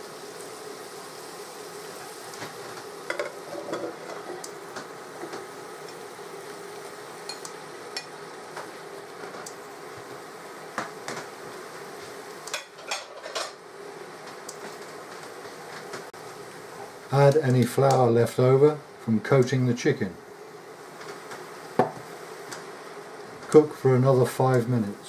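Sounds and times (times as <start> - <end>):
vegetables sizzling in a saucepan: 0.0 - 25.0.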